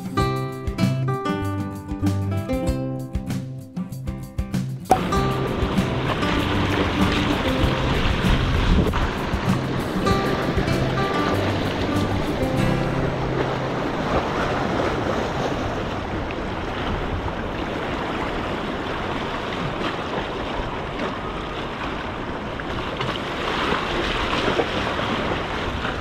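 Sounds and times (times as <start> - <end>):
wind buffeting microphone: 4.9 - 21.4
sea surf washing against rocks: 4.9 - 26.0.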